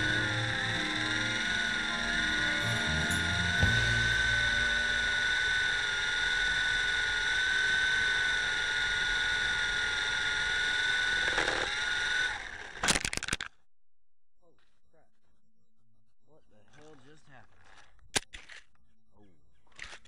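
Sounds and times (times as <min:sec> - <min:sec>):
model helicopter motor whining: 0:00.0 - 0:12.9.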